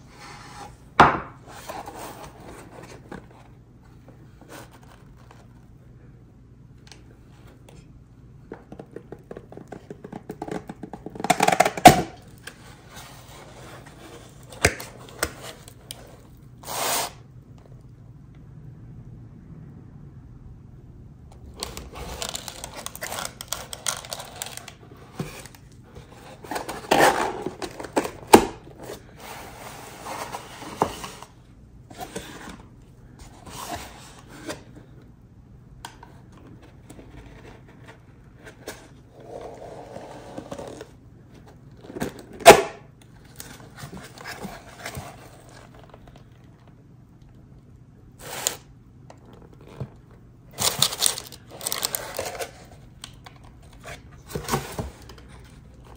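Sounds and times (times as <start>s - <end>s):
food packaging rustling: 21.5s - 28.4s, 50.5s - 52.9s.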